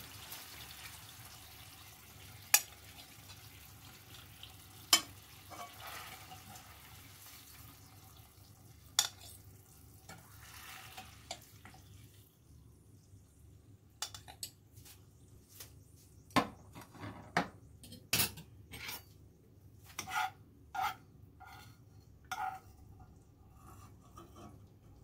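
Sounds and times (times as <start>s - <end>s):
utensils and dishes clinking: 9.0s - 9.4s.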